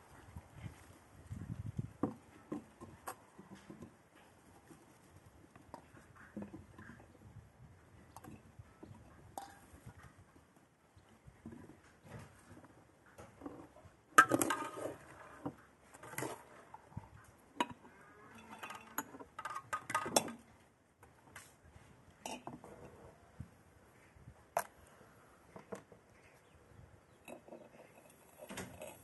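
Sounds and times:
fruit clinking on glass jars: 17.6s - 20.4s.

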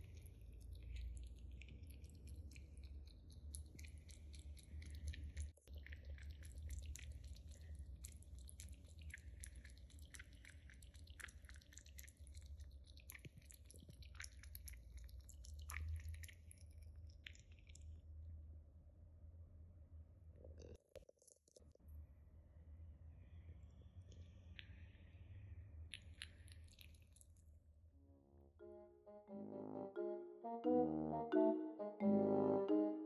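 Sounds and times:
kitten lapping water: 0.0s - 18.2s, 24.1s - 27.7s.

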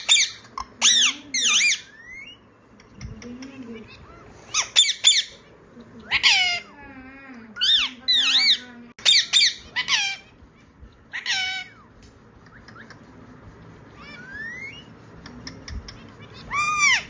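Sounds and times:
parakeet squawky calls: 4.5s - 5.4s, 6.1s - 6.7s, 7.6s - 10.4s, 11.1s - 11.9s, 14.0s - 14.9s, 16.2s - 17.0s.

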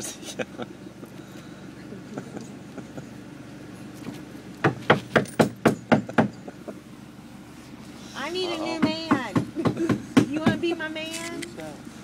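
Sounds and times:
car engine idling: 0.0s - 12.0s
sharp knocks: 4.6s - 6.4s.

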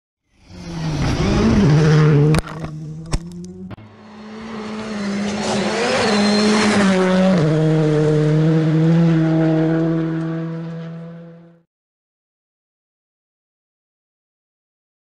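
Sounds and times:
race car engine passing by: 0.4s - 11.6s.

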